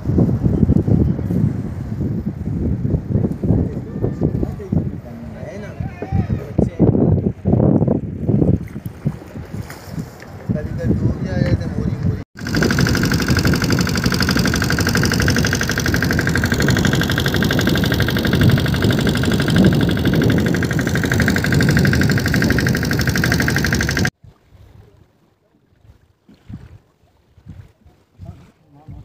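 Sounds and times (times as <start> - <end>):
boat engine chugging: 12.4 - 24.1.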